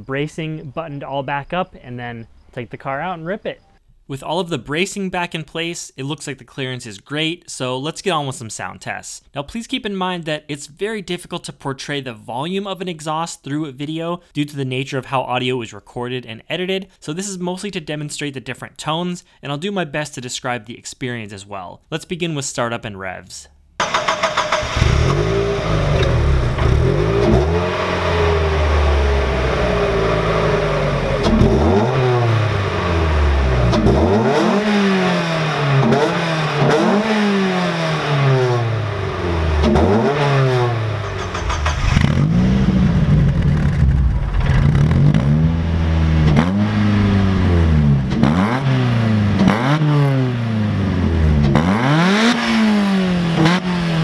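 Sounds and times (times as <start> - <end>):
car engine revving: 23.8 - 54.0
car engine starting: 23.8 - 54.0.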